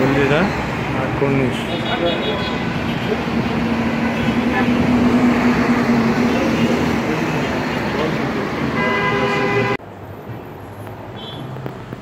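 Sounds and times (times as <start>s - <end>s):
road traffic: 0.0s - 12.0s
car horn: 1.5s - 7.0s, 8.7s - 9.8s.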